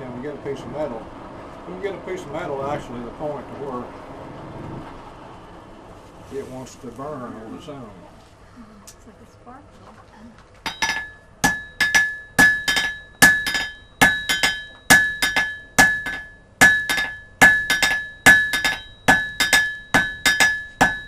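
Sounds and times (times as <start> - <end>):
anvil ringing: 10.7 - 21.0
hammer beating metal on anvil: 10.7 - 21.0.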